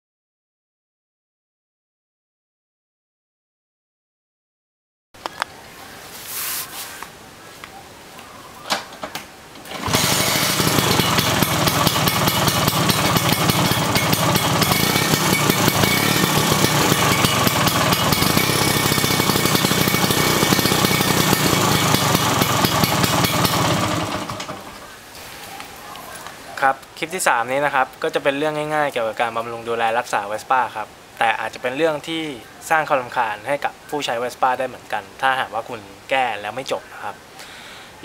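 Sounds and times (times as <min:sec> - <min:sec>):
scooter engine running: 0:09.7 - 0:24.8.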